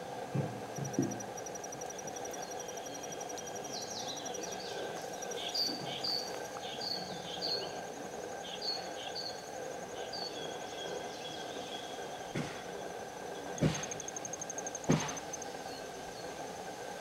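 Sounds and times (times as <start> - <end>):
insect trill: 0.0 - 17.0
small bird chirping: 0.8 - 7.8.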